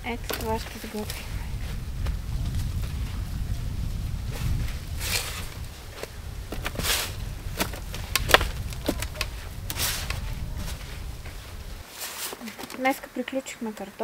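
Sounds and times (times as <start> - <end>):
wind rumble on microphone: 0.0 - 11.9
hands scraping soil in wheelbarrow: 0.1 - 3.3, 4.2 - 13.1
potatoes dropping into plastic crate: 5.1 - 10.8.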